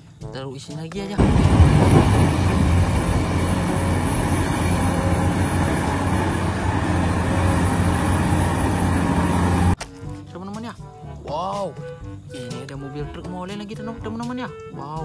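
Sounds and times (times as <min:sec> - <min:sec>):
excavator diesel engine running: 0:01.2 - 0:09.8.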